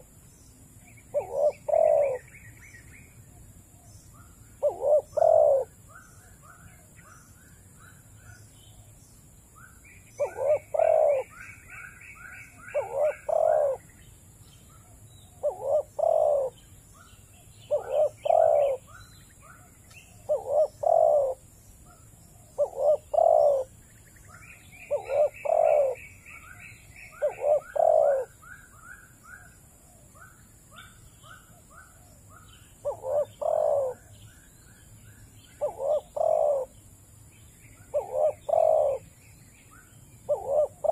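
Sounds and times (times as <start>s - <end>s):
bird chirping: 0.0s - 40.9s
dove cooing: 1.1s - 2.4s, 4.6s - 6.0s, 10.2s - 13.9s, 15.4s - 16.6s, 17.7s - 19.0s, 20.2s - 23.8s, 24.8s - 26.4s, 27.0s - 28.6s, 30.8s - 34.2s, 35.6s - 36.8s, 37.8s - 39.2s, 40.3s - 40.9s.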